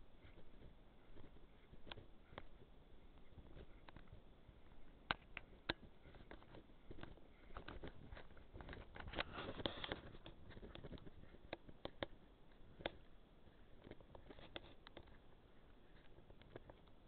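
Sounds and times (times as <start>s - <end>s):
camera handling noise: 5.1s - 13.1s.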